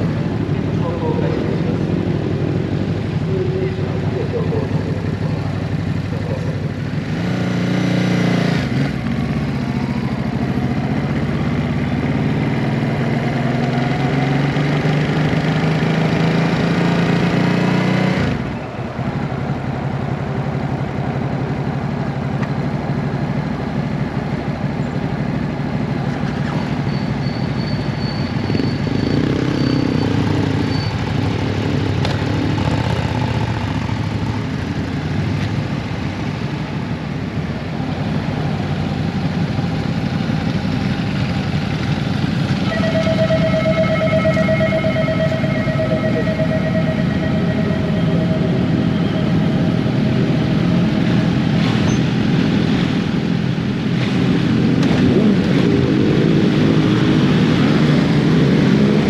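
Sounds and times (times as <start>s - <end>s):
motorcycle engine revving: 0.0s - 18.6s, 27.9s - 35.4s, 38.0s - 59.0s.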